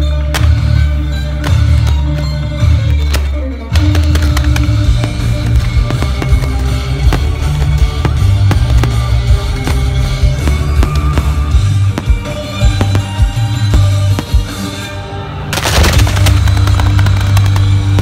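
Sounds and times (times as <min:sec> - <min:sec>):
loud music with bass and drums: 0:03.6 - 0:18.0
fireworks banging: 0:03.8 - 0:18.0.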